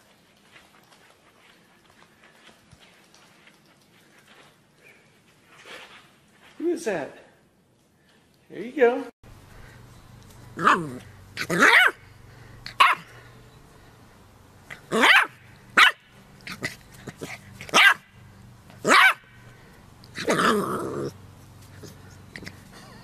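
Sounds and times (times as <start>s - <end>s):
puppy barking: 10.6s - 12.0s, 12.7s - 13.1s, 14.8s - 16.6s, 17.2s - 18.2s, 18.8s - 19.4s.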